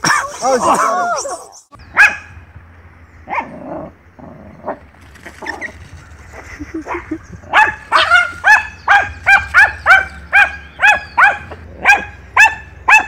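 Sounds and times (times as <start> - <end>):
small dog barking rapidly: 1.8 - 2.4, 3.3 - 3.6, 6.8 - 13.0.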